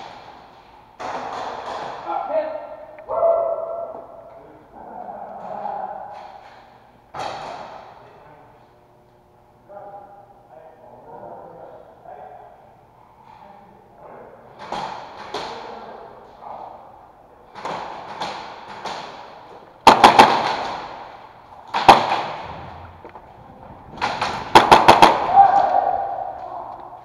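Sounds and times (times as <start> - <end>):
airsoft gunshots ringing in hall: 0.0 - 8.3, 14.4 - 23.2, 23.9 - 27.0.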